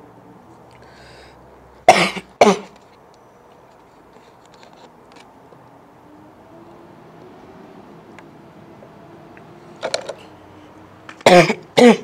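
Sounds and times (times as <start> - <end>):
man coughing: 1.9 - 2.8, 11.2 - 12.0.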